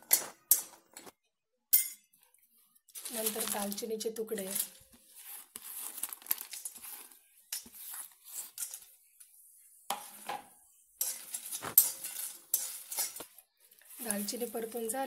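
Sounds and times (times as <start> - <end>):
bark pieces rattling in metal wok: 3.0 - 4.8, 5.9 - 7.7, 8.4 - 8.9, 11.0 - 15.0.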